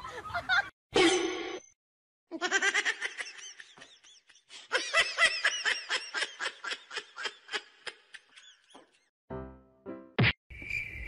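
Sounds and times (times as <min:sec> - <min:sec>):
person laughing: 0:02.3 - 0:08.8.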